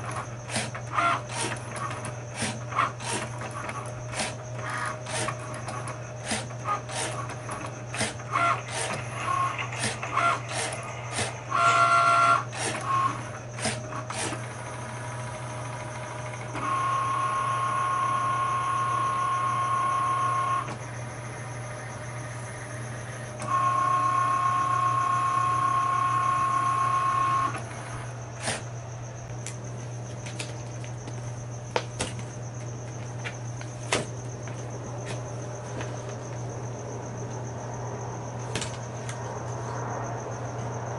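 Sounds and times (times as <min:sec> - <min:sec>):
cutting machine motors whining: 0:00.0 - 0:37.2.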